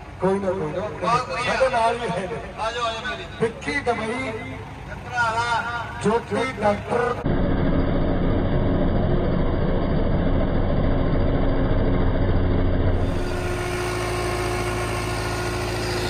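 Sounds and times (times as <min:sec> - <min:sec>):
tractor diesel engine running: 0:00.0 - 0:16.0
steady hum: 0:06.9 - 0:16.0.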